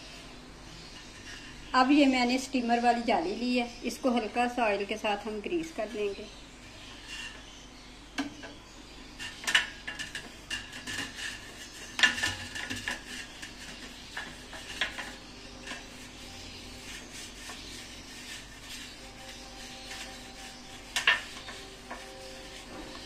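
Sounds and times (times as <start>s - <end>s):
brush scraping metal plate: 5.2s - 7.6s, 8.3s - 23.0s.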